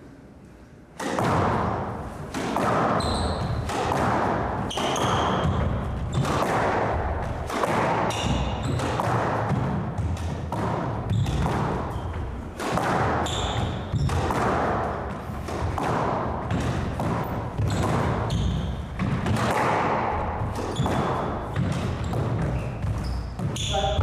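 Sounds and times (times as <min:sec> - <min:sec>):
squash ball struck by racquets: 0:00.9 - 0:24.0
shoes squeaking on wooden floor: 0:02.8 - 0:03.7, 0:04.6 - 0:06.4, 0:08.0 - 0:09.0, 0:11.0 - 0:14.3, 0:17.2 - 0:19.2, 0:20.3 - 0:24.0.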